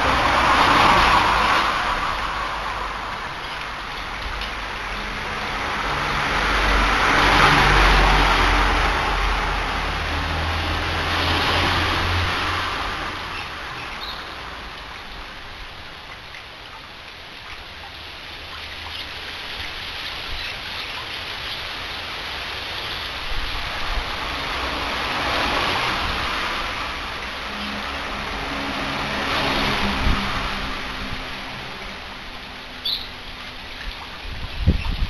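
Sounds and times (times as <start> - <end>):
traffic passing: 0.0 - 35.0.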